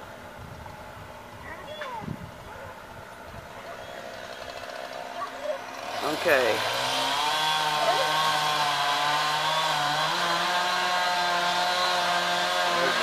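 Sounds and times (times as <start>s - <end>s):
chainsaw cutting wood: 3.5s - 13.0s.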